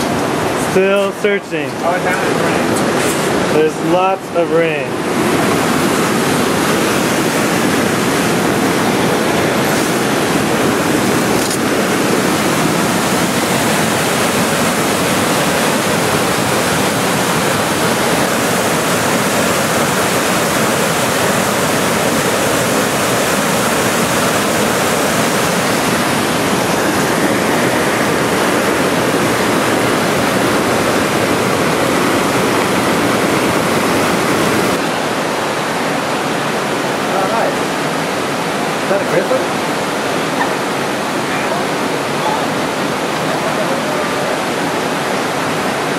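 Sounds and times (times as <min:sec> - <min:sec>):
whitewater rapids rushing: 0:00.0 - 0:45.9.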